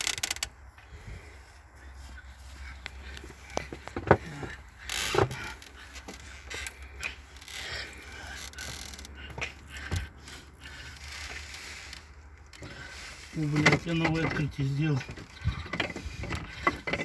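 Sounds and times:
clicks and knocks of parts: 13.6 - 17.0.

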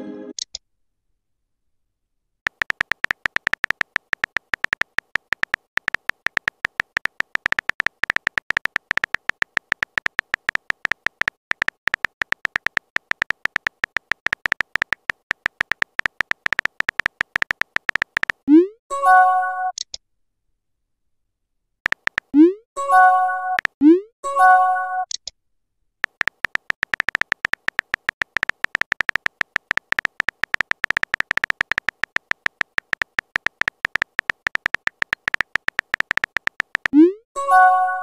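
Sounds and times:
keyboard typing clicks: 2.5 - 18.6, 21.8 - 22.6, 23.5 - 23.9, 26.0 - 37.2.

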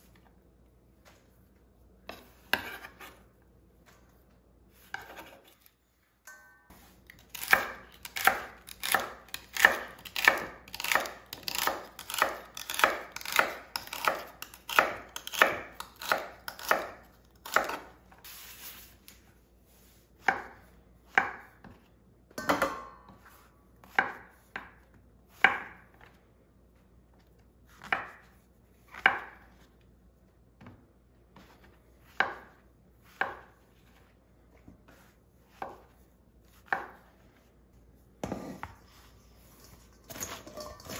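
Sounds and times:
knife chopping on cutting board: 4.8 - 5.6, 7.3 - 17.9, 20.2 - 21.8, 31.4 - 33.6, 34.9 - 37.2.

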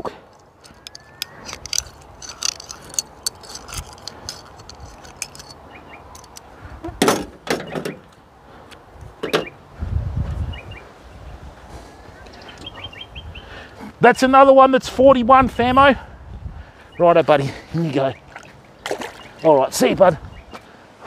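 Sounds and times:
metallic clicks of fish hook: 0.4 - 6.5.

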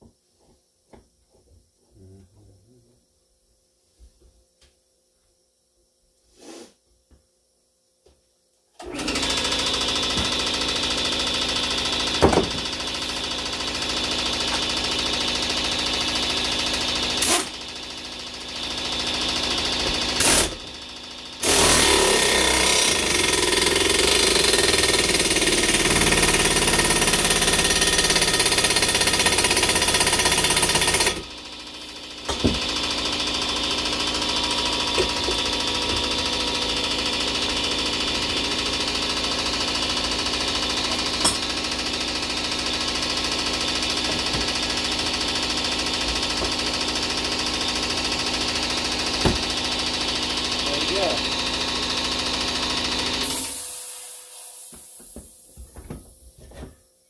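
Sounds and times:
impact wrench hammering: 9.9 - 17.6, 18.9 - 20.8, 21.4 - 53.6.

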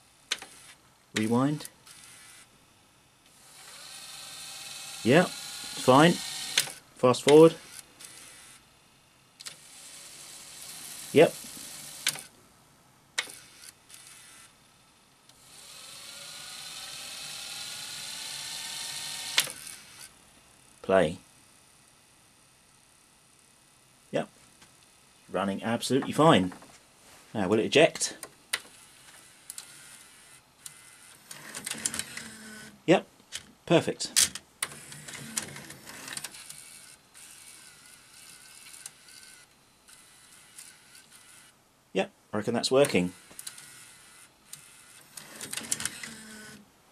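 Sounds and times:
tape mechanism noise: 0.0 - 2.5, 3.2 - 8.7, 9.4 - 12.4, 13.2 - 20.9, 27.4 - 41.6, 42.4 - 46.6
tape winding whir: 0.0 - 12.4, 13.2 - 24.0, 27.9 - 32.8, 34.2 - 41.6, 42.6 - 46.6
tape deck clicks: 5.8 - 7.6, 19.2 - 19.7, 30.6 - 32.4, 44.6 - 46.6.

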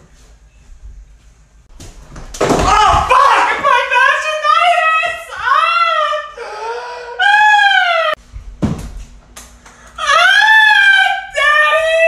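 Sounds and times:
person crying out in pain: 5.4 - 8.2.

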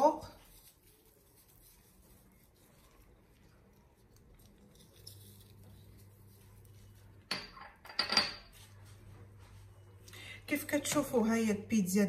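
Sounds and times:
faint low hum: 0.1 - 12.0
glass bowl clinking on stone: 7.3 - 8.5.

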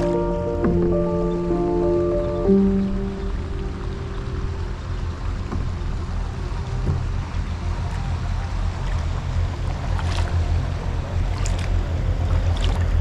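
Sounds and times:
moving water: 0.0 - 13.0
light water splashes: 5.3 - 13.0.

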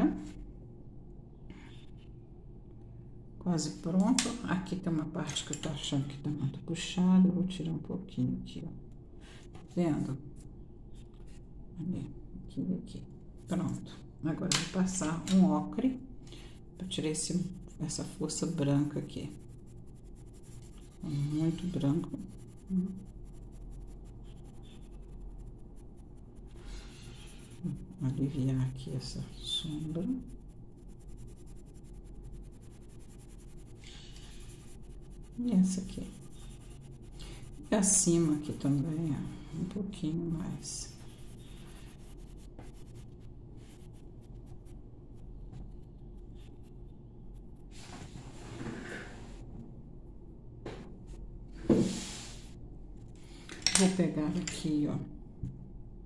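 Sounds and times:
low steady hum: 0.0 - 56.0
pencil scratching on paper: 17.6 - 47.8.

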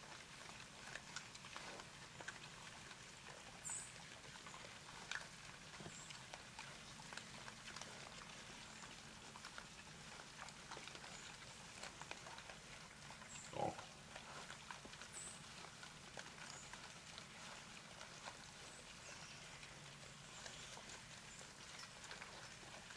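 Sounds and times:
crunching and rustling in leaves: 0.0 - 22.9
hog grunt: 13.4 - 14.4.

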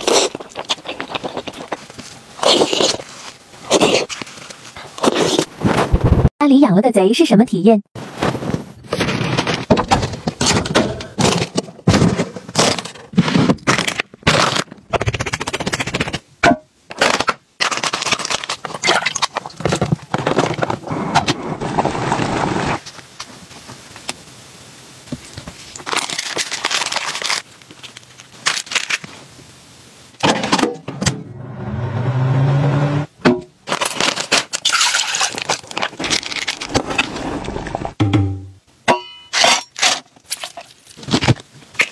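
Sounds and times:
plastic packaging crinkling: 16.9 - 20.9, 25.2 - 29.2, 33.6 - 38.0, 39.8 - 41.9
food handling scraping: 33.7 - 38.0.

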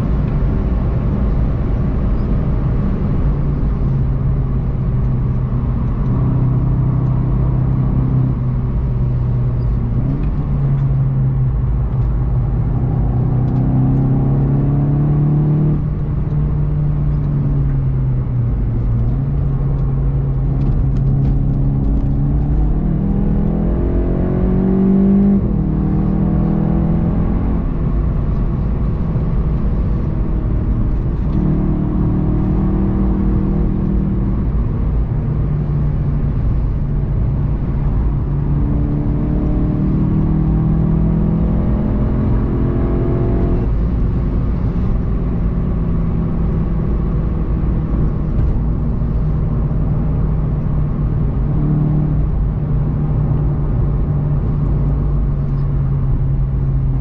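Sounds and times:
car engine running hard: 0.0 - 57.0.

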